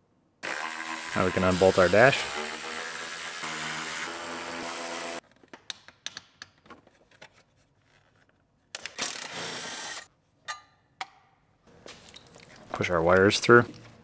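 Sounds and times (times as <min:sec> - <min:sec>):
electric ratchet running: 0:09.0 - 0:10.1.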